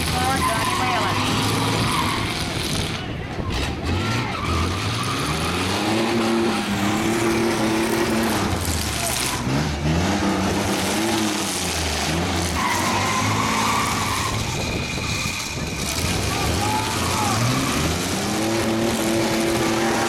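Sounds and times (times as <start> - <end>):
truck engines revving hard: 0.0 - 20.0
spinning tyres hissing: 4.3 - 20.0.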